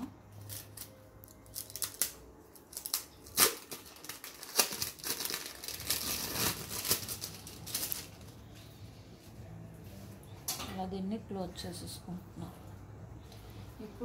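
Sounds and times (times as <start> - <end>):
plastic packaging crinkling: 0.4 - 8.4.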